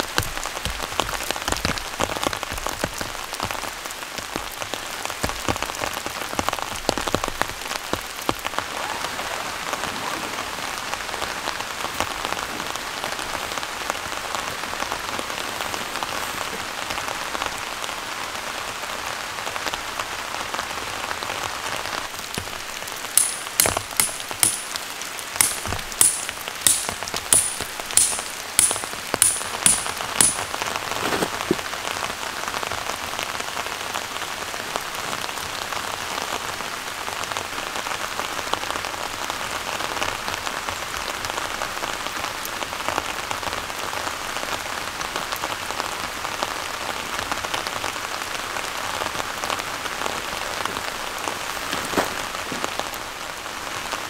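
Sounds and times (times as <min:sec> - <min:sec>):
rain on ground and tent: 0:00.0 - 0:54.0
sharp ringing taps: 0:23.2 - 0:24.8, 0:25.4 - 0:30.5.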